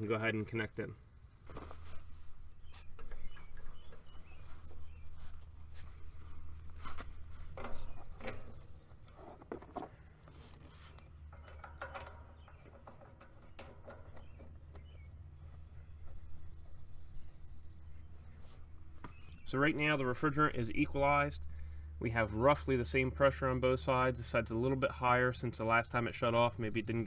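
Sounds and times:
steady low hum: 0.0 - 27.0
metallic clicks and light knocks: 11.3 - 14.9.

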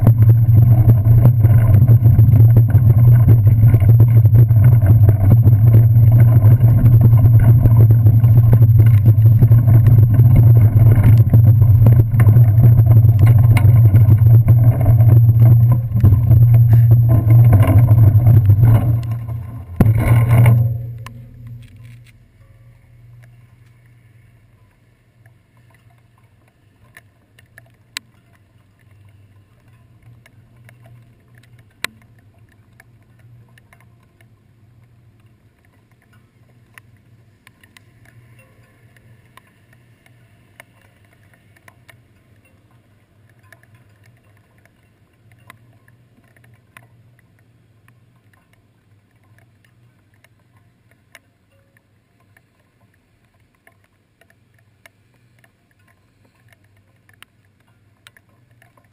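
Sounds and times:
steady low hum: 0.0 - 26.8
raindrops ticking on camera: 0.0 - 58.9.

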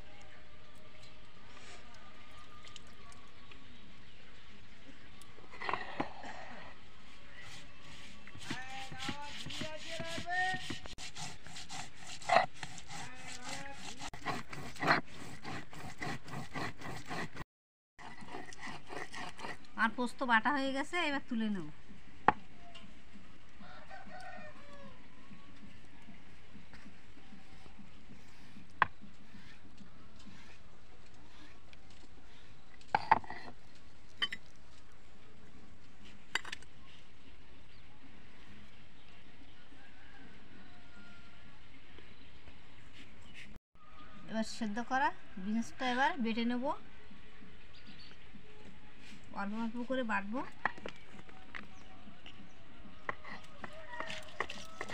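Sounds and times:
stone pestle grinding seeds: 7.5 - 17.4, 18.0 - 19.8, 26.7 - 31.7.

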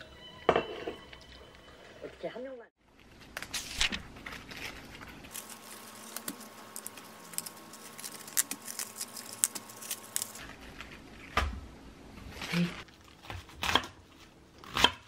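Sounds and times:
cabbage leaves snapping and tearing: 3.3 - 11.0.

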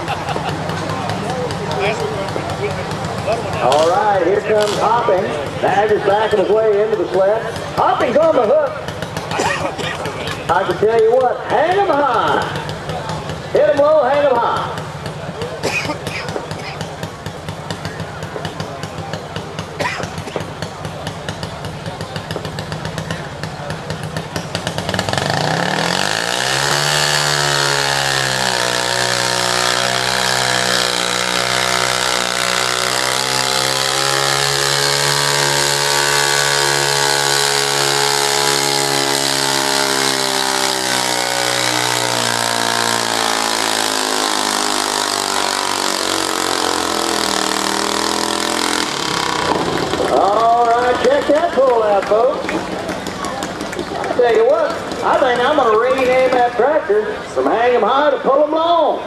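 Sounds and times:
garden tractor engine revving: 0.0 - 59.0.

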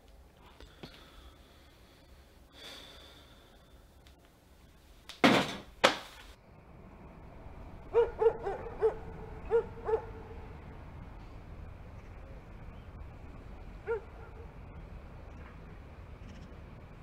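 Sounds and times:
dog barking: 7.9 - 10.4, 13.8 - 14.5.

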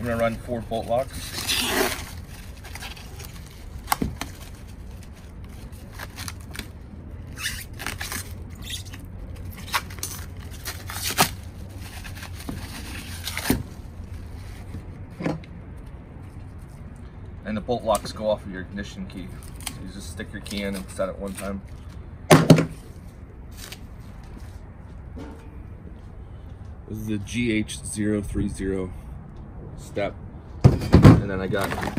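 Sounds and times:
plastic packaging crinkling and tearing: 0.0 - 14.6, 19.3 - 21.9.

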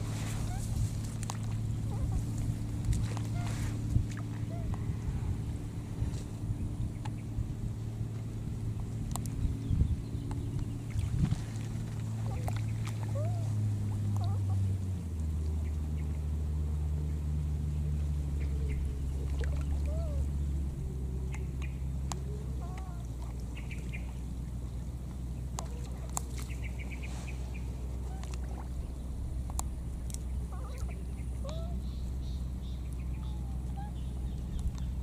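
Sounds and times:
low motor hum: 0.0 - 35.0
faint squeaky calls: 30.5 - 34.2.

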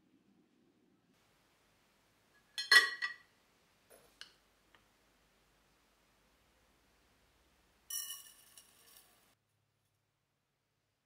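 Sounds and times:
metal clinking on glass: 2.6 - 3.2, 7.9 - 9.2.

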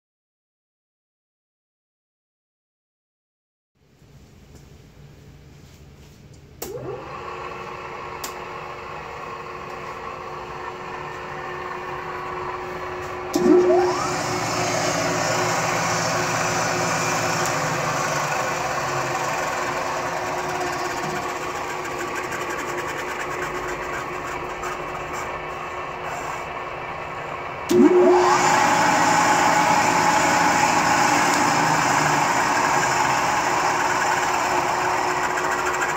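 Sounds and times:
second rising machine whine: 6.6 - 35.9
induction motor whining: 9.0 - 35.9.

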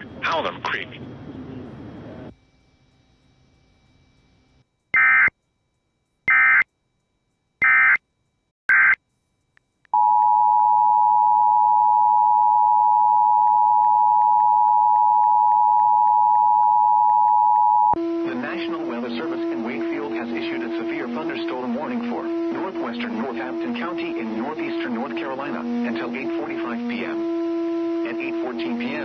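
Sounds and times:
digital data tone bursts: 4.9 - 5.4, 6.3 - 6.7, 7.6 - 8.0, 8.7 - 9.0
two-tone attention signal: 10.0 - 29.0.

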